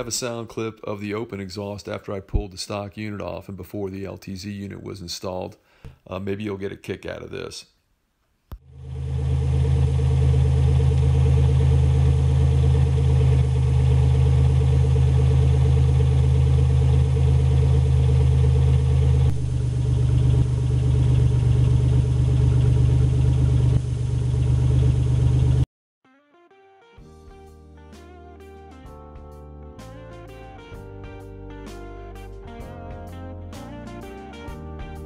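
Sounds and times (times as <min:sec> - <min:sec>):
car engine idling loudly: 0:08.7 - 0:25.6.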